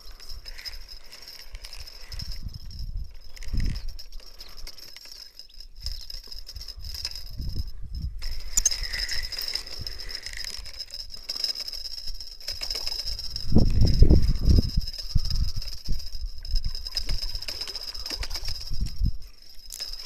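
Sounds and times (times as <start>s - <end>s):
fishing reel rattling: 0.0s - 20.0s
wind buffeting microphone: 2.0s - 4.0s, 6.6s - 10.1s, 13.0s - 19.2s.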